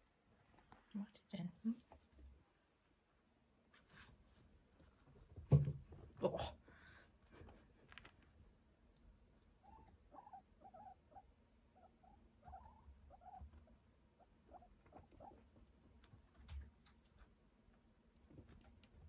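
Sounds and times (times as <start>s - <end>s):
guinea pigs squeaking: 9.4s - 17.0s.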